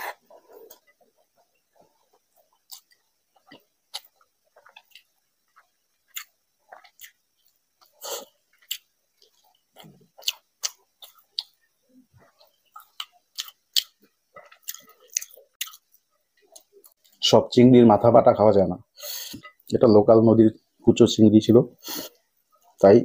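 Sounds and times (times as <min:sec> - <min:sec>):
person chewing: 0:00.0 - 0:17.2.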